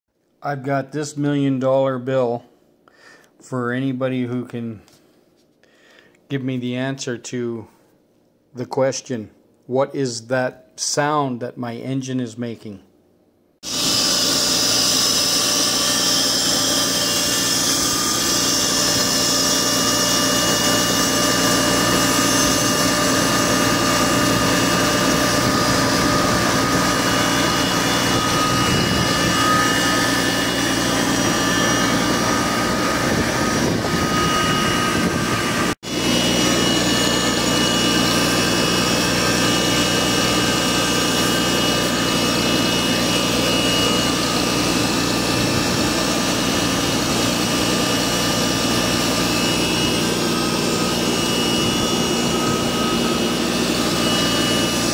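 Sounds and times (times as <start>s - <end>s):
high-pitched whine: 13.7s - 54.9s.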